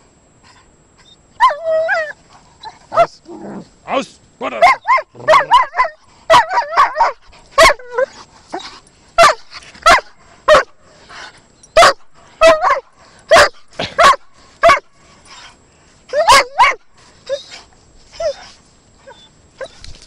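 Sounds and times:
dog barking: 0:04.6 - 0:07.8, 0:09.2 - 0:10.7, 0:11.8 - 0:14.9, 0:16.2 - 0:16.8.

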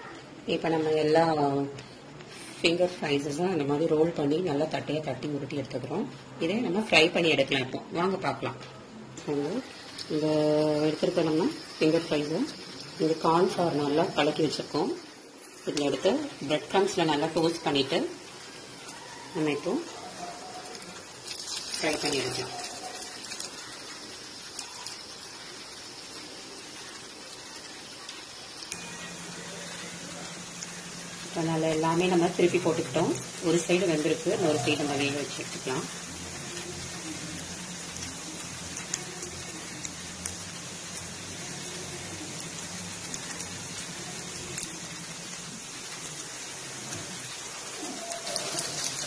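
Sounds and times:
oil sizzling in a pan: 0:00.0 - 0:49.0
small pops and crackles: 0:20.1 - 0:31.3, 0:34.9 - 0:49.0.

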